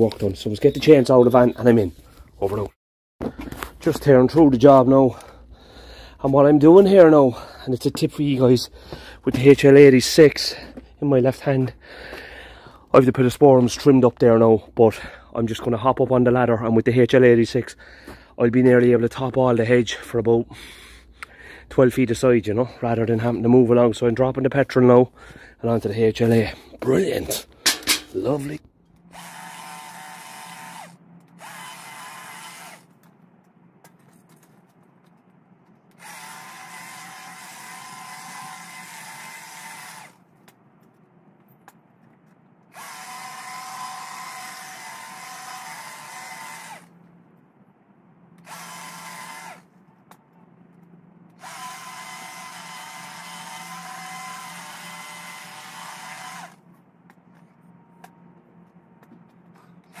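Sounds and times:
hedge trimmer motor whining: 27.7s - 32.9s, 35.9s - 40.2s, 42.7s - 46.9s, 48.4s - 49.6s, 51.3s - 56.6s.

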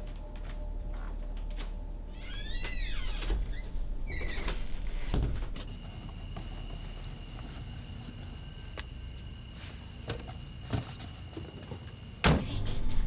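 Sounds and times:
crickets trilling: 1.9s - 13.0s
loud thump: 5.0s - 5.6s.

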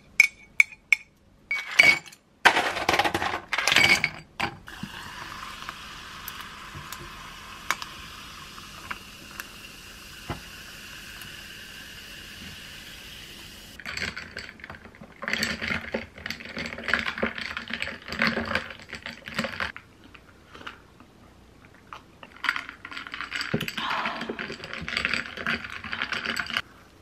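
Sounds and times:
sparkling water fizzing: 4.7s - 13.8s.

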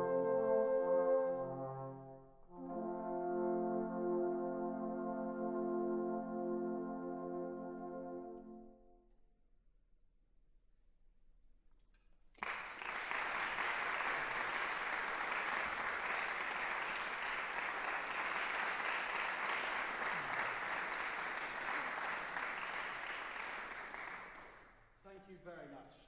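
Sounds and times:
audience applauding: 12.4s - 24.7s.

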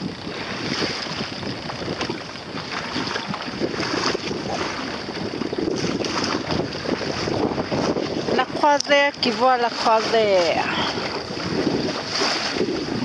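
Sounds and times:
water splashing against hull: 0.0s - 13.0s
wind buffeting microphone: 0.0s - 13.0s.

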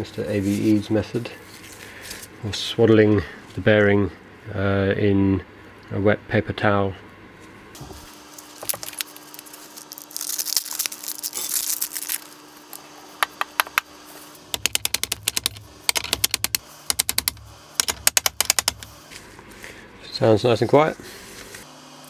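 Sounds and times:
wrapping rustling: 8.3s - 12.7s
sharp metal clicks: 14.5s - 18.9s.

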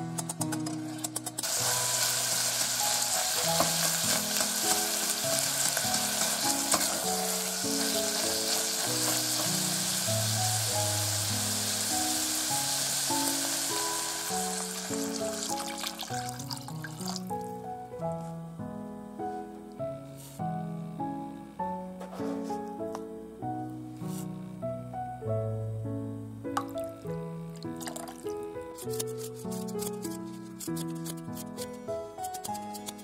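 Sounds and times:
spatula stirring in a pan: 1.1s - 10.4s
meat sizzling in oil: 1.4s - 17.4s
water pouring into a pan: 1.4s - 17.4s, 27.6s - 28.3s.

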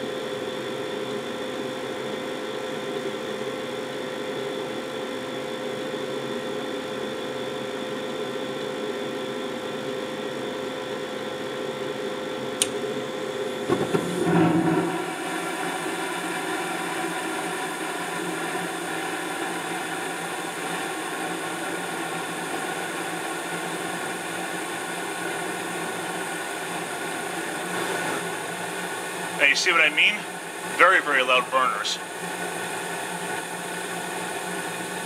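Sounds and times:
furnace inducer humming: 12.4s - 35.0s
gas burners roaring: 12.6s - 35.0s
gas burners igniting whoosh: 13.5s - 17.5s.

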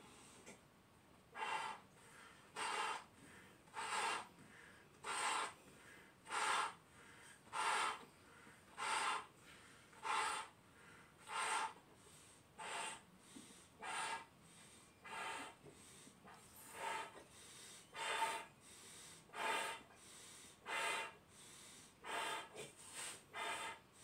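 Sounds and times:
man blowing up balloons: 1.4s - 5.6s, 6.2s - 6.8s, 7.4s - 8.0s, 8.7s - 9.3s, 9.9s - 10.6s, 11.2s - 11.8s, 12.6s - 13.0s, 13.8s - 14.3s, 15.0s - 15.8s, 16.4s - 19.9s, 20.5s - 23.9s
rushing breath: 1.4s - 24.0s.

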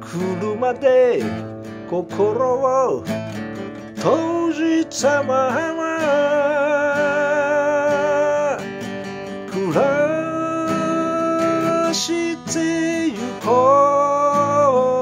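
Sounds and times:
strummed acoustic guitar: 0.0s - 15.0s
man singing long held notes: 4.0s - 8.6s, 9.5s - 15.0s.

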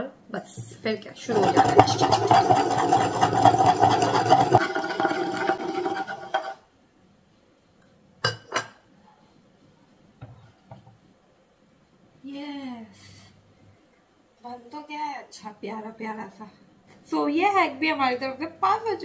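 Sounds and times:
glass jar rattling on wooden board: 1.3s - 6.6s.

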